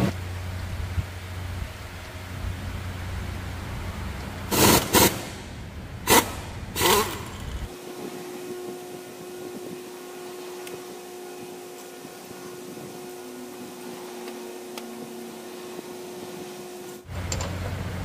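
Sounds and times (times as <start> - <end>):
tractor engine idling: 0.0 - 7.7
loud noisy engine bursts: 0.0 - 18.0.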